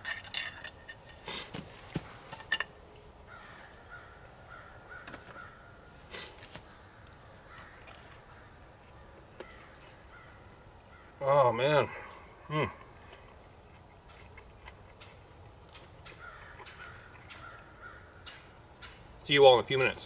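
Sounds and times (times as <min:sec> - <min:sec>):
crow-like bird caws: 0:03.3 - 0:05.8, 0:06.7 - 0:11.3, 0:16.0 - 0:19.0.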